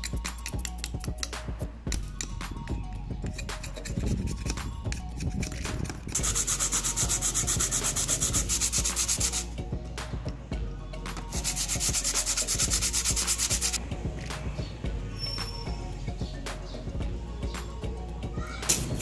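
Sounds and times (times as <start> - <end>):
handle rubbed on sandpaper: 5.8 - 9.5, 11.3 - 13.8.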